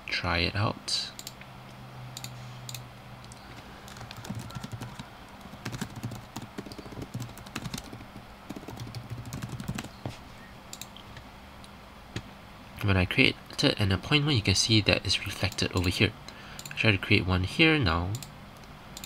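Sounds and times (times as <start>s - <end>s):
typing on computer keyboard: 3.3s - 10.0s.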